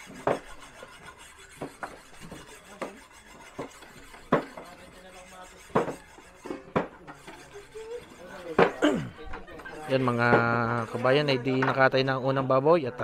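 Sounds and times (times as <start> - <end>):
kitchen utensils knocking and clattering: 5.6 - 11.9.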